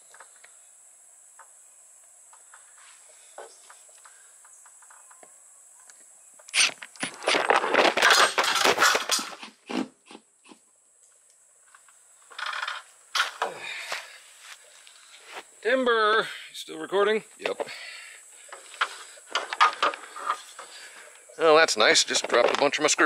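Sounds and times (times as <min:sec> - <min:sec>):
screws dropping: 0:06.6 - 0:09.4, 0:12.3 - 0:13.4
phone falling and clattering: 0:07.0 - 0:09.4.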